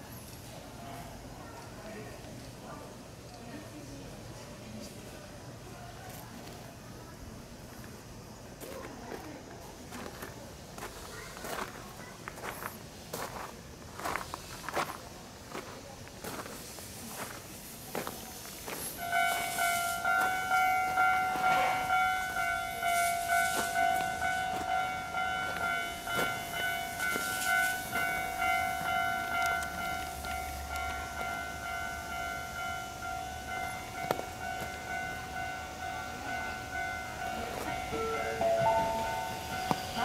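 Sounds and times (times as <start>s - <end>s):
level crossing bell ringing: 19.0s - 40.0s.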